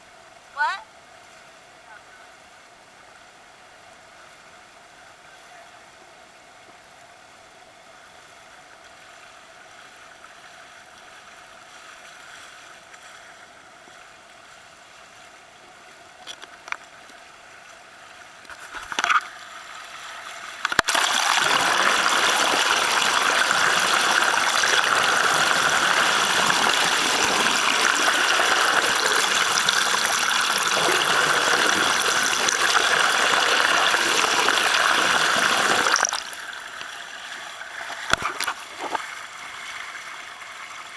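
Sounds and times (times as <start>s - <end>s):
faint water noise: 0.0s - 40.9s
underwater rushing hiss: 20.8s - 36.6s.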